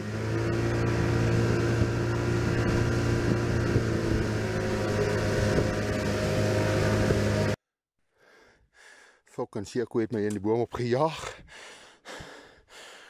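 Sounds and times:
outboard motor running: 0:00.0 - 0:07.6.

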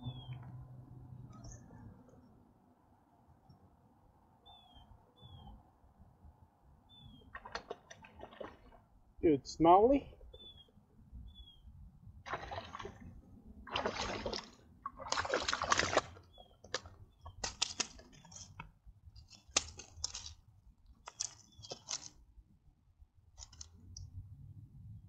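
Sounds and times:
fish splashing in water: 0:07.3 - 0:08.8, 0:12.2 - 0:18.3.

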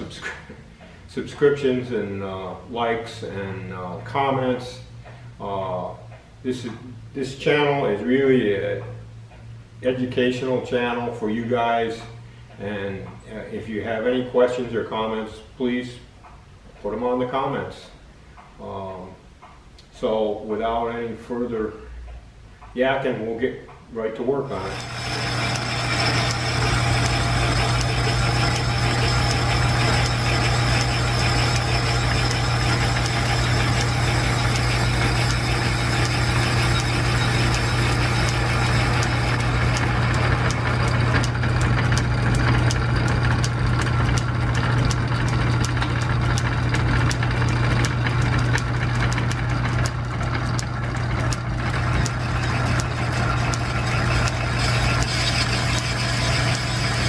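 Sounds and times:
low machinery hum: 0:00.0 - 0:57.0
fast ticking of cutting tool: 0:24.5 - 0:57.0
metal lathe running: 0:24.5 - 0:57.0.

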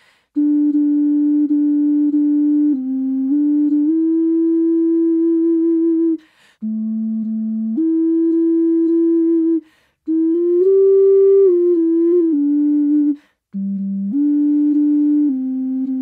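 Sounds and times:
player taking a breath: 0:00.0 - 0:00.3, 0:06.2 - 0:06.6, 0:09.6 - 0:10.0
ocarina melody: 0:00.3 - 0:16.0.

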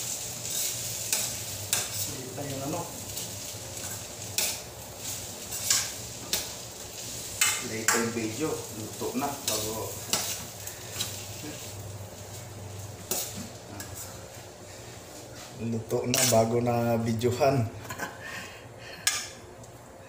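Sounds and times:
utensil scraping frying pan: 0:00.0 - 0:17.2
hot oil sizzling: 0:00.0 - 0:18.4.

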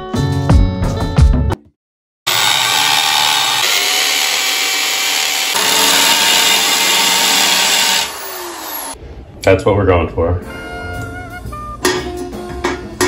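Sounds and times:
electric drill boring into wall: 0:02.3 - 0:09.0.

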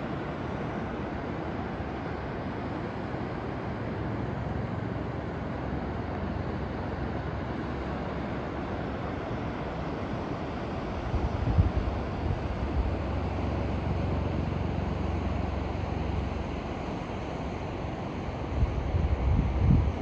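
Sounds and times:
wind buffeting microphone: 0:11.0 - 0:13.3, 0:18.5 - 0:20.0.

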